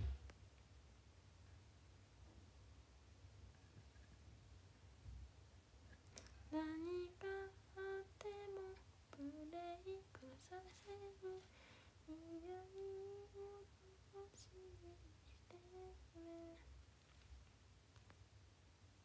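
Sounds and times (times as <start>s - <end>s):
woman humming a melody: 6.5s - 16.7s.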